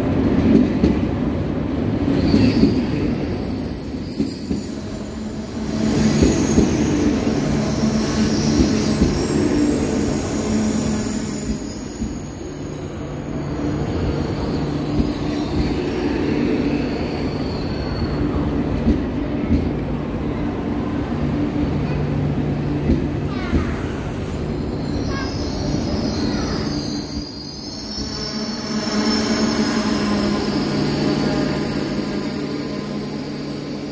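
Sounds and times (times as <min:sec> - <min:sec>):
train drive hum: 0:00.0 - 0:33.9
train wheel squeal: 0:02.0 - 0:18.7, 0:23.5 - 0:33.9.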